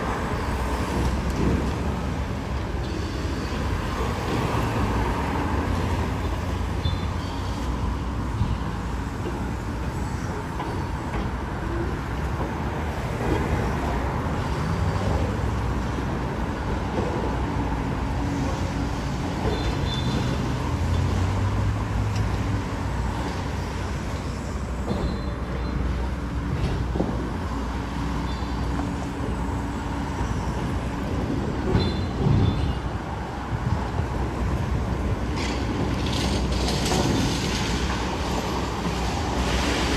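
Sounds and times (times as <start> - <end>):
cars and trucks passing: 0.0 - 39.9.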